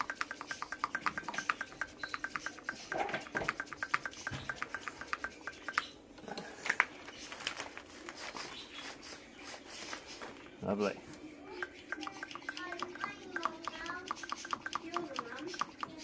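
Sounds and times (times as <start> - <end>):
sharp clicks and knocks: 0.0 - 6.9.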